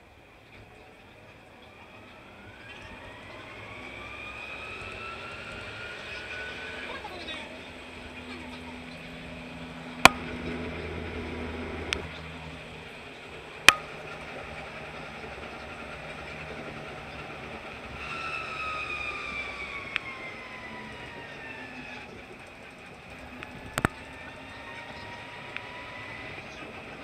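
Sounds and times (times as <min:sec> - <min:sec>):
tram rumbling on tracks: 0:00.0 - 0:27.0
electric motor whine: 0:01.8 - 0:27.0
sharp clicks of tracks: 0:10.0 - 0:10.4.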